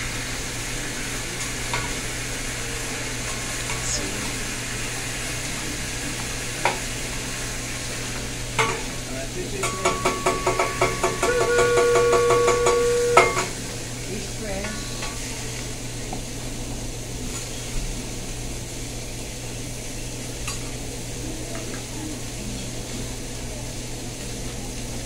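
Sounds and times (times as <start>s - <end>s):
food sizzling on griddle: 0.0s - 25.0s
metal spatulas clacking on griddle: 9.6s - 13.6s
ringing tone: 9.7s - 13.5s.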